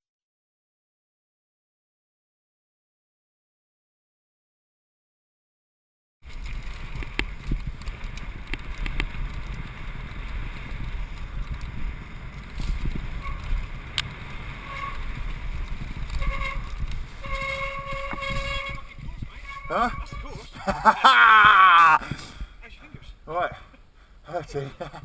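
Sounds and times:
bike knocking and rattling: 6.2s - 20.8s
tyres rumbling on dirt: 6.2s - 22.2s
disc brakes squealing: 16.2s - 20.4s.

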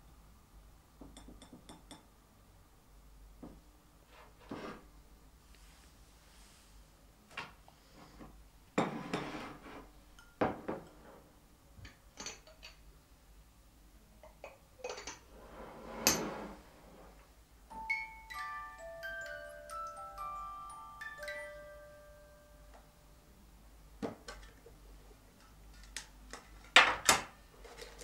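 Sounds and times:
crockery and cutlery clinking: 8.8s - 12.8s, 14.2s - 15.3s
melody of high single notes: 17.7s - 22.8s.

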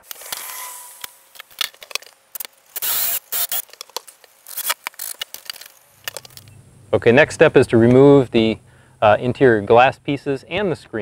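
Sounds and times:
short hissing bursts: 2.6s - 3.7s.

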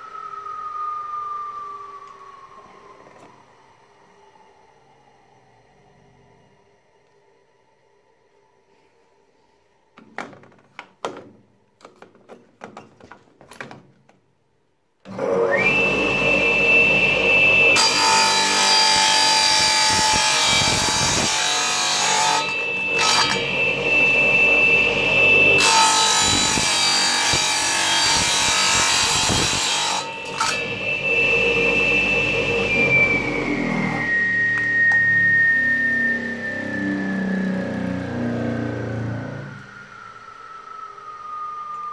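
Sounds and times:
tile saw motor whining: 15.1s - 41.9s.

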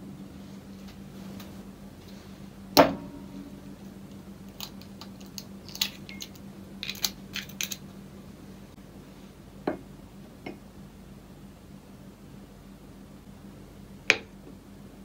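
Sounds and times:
faint steady hum: 0.0s - 15.0s
eggshell cracking: 4.4s - 7.8s.

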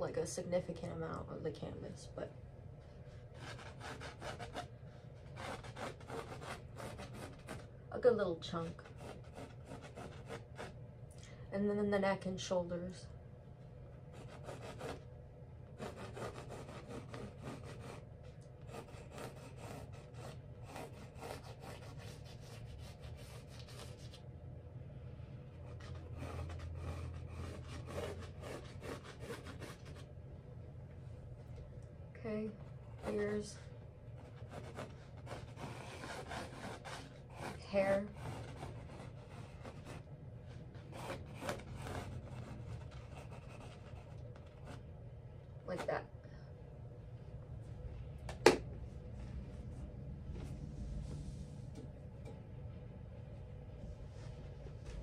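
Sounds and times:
pencil scratching on canvas: 3.4s - 7.7s, 8.5s - 10.8s, 14.1s - 15.0s, 15.8s - 24.2s, 25.6s - 30.1s, 32.5s - 44.9s.

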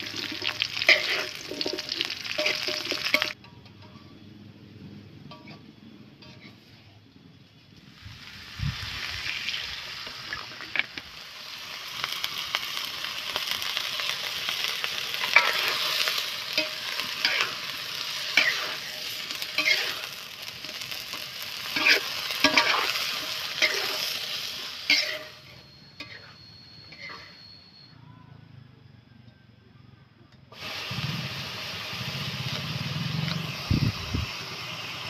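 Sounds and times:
food sizzling in a wok: 0.0s - 3.4s, 7.6s - 27.4s, 30.5s - 35.0s
metal spatula scraping pan: 0.0s - 4.2s, 5.3s - 6.9s, 15.1s - 27.5s.

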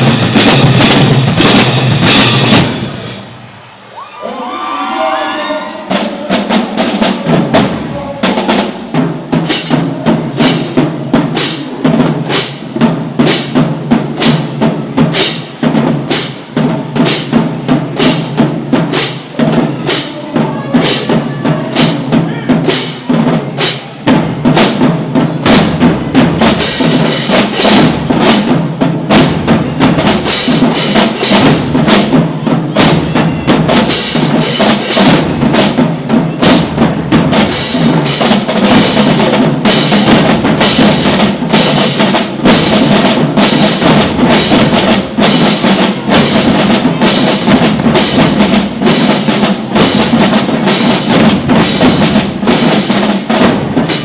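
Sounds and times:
bass drums: 0.0s - 3.3s, 20.4s - 54.0s
snare drums: 0.0s - 3.5s, 5.6s - 54.0s.

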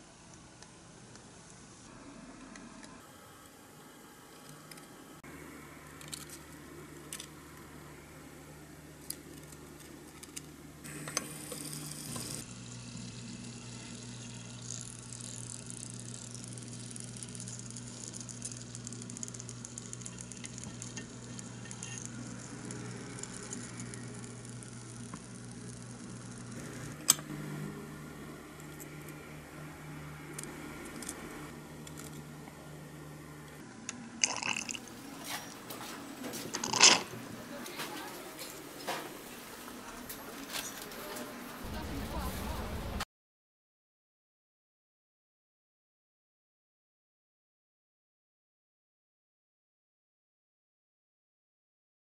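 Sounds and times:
low steady hum: 0.0s - 43.0s
oil sizzling and crackling: 10.9s - 27.0s.

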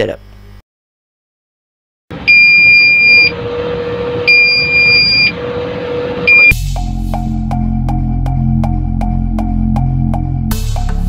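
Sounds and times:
truck cab and road noise: 2.1s - 6.6s
high electronic warning beep: 2.2s - 6.6s
music: 6.4s - 11.0s.

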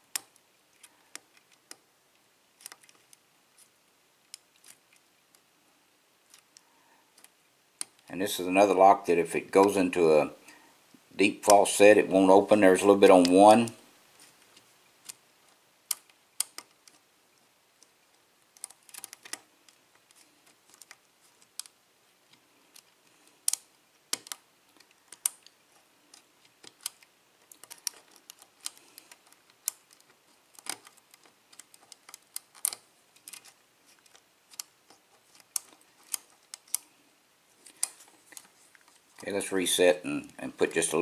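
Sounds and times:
lock pick clicking on pins: 2.6s - 3.2s, 15.9s - 17.0s, 17.8s - 21.8s, 22.7s - 36.9s.

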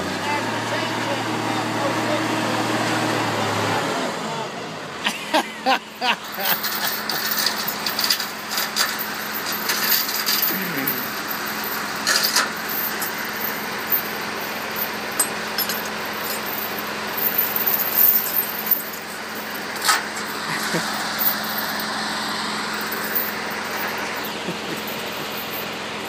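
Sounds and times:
truck engine idling: 0.0s - 26.0s
chains clinking and rattling: 5.9s - 26.0s.

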